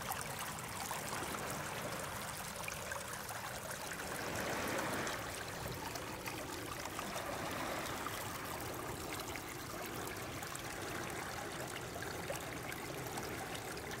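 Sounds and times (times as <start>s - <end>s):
creek babbling over pebbles: 0.0s - 14.0s
small water splashes: 0.0s - 14.0s.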